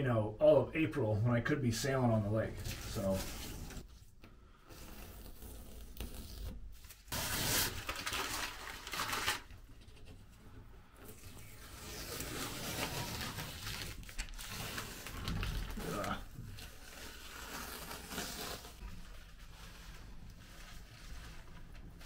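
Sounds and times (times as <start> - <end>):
masking tape being peeled off: 4.7 - 9.4, 11.1 - 18.9.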